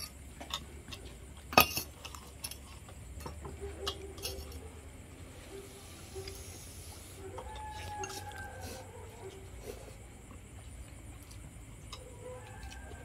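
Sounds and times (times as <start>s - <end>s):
utensils clinking against ceramic bowls: 1.5s - 4.7s.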